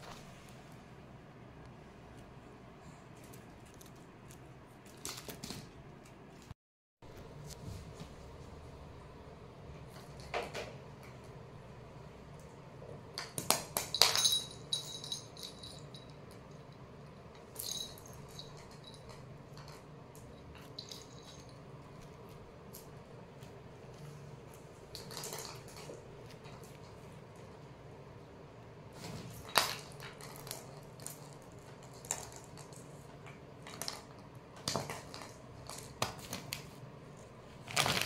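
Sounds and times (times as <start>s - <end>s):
cat toys clicking and rattling on tiles: 3.2s - 5.9s, 13.1s - 27.6s, 29.3s - 36.8s.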